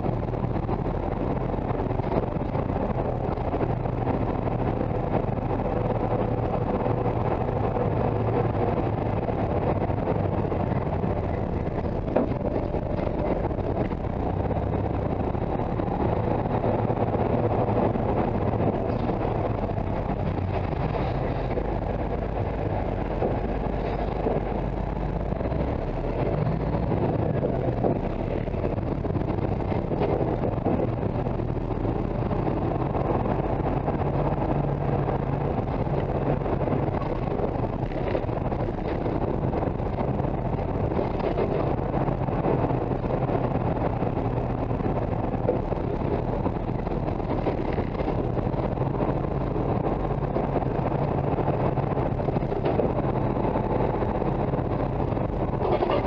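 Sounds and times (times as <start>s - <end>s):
truck road noise and drone: 0.0s - 56.0s.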